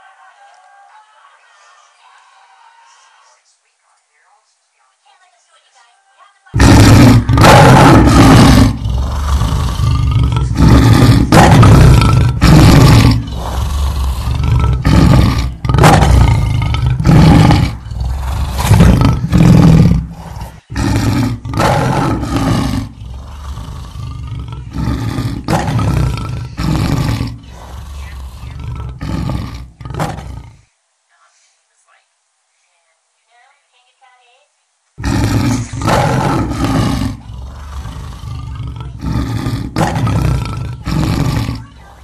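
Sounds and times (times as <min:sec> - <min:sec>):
lion roaring and snarling: 0:06.6 - 0:30.6, 0:35.0 - 0:41.8.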